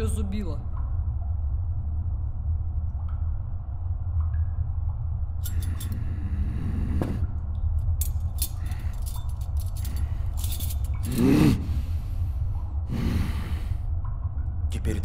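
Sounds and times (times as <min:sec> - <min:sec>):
steady low hum: 0:00.0 - 0:15.0
metal tools clinking on wood: 0:05.4 - 0:06.0, 0:08.0 - 0:11.2
person grunting: 0:11.1 - 0:11.9.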